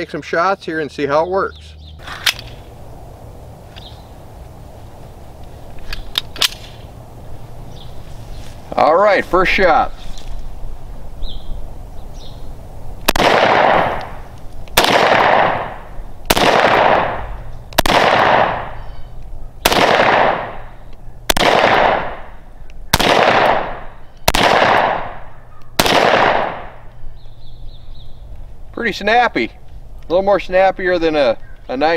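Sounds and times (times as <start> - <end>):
pistol shots with echo: 13.1 - 14.2, 14.8 - 18.8, 19.6 - 26.8.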